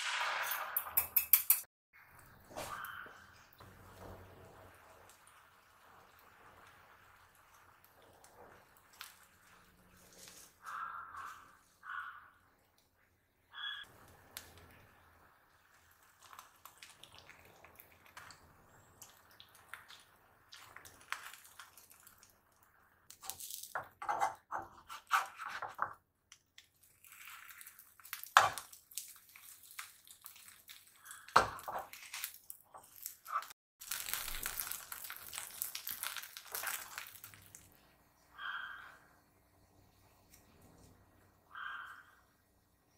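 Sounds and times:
crinkling and crunching: 7.6s - 11.4s, 15.6s - 23.8s, 26.6s - 37.8s.

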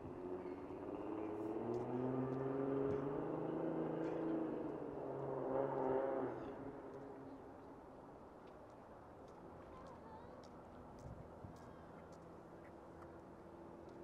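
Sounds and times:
passing engine hum: 0.0s - 7.3s.

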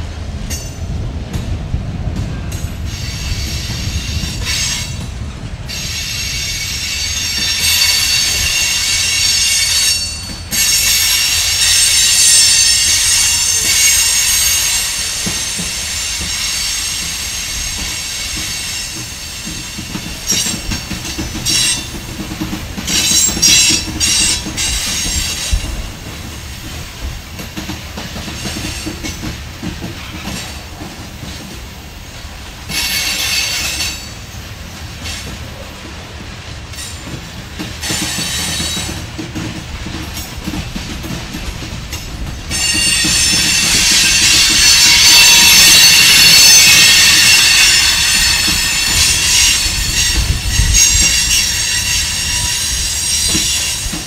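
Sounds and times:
train wheels rumbling on rail: 0.0s - 54.0s
train wheels squealing: 2.9s - 5.0s, 5.7s - 25.9s, 28.0s - 29.3s, 32.7s - 35.5s, 36.7s - 39.5s, 42.0s - 54.0s.

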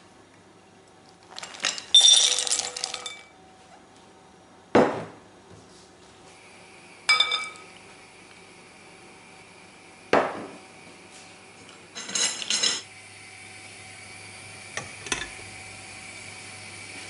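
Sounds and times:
glass clinking on pan: 7.1s - 7.7s.

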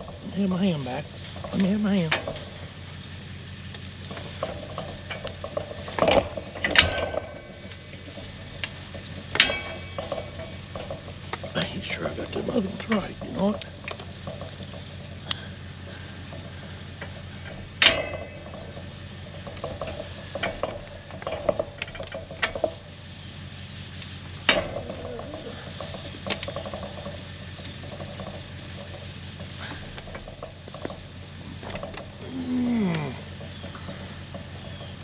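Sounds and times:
sharp knocks on metal chute: 4.1s - 23.0s, 24.4s - 35.0s.

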